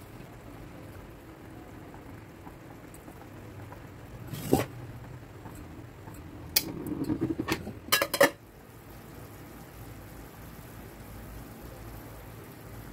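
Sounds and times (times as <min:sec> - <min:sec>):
soup bubbling in pot: 0:00.0 - 0:12.9
metal pot clanking on stove: 0:05.5 - 0:08.4.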